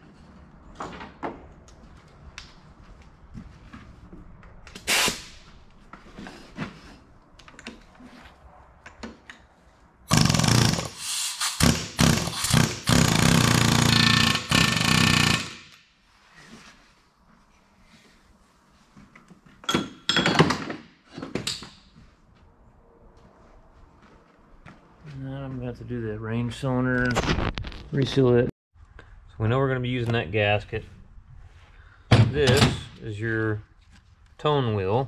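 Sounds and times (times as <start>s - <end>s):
pneumatic impact wrench hammering: 4.8s - 5.4s, 10.1s - 15.8s.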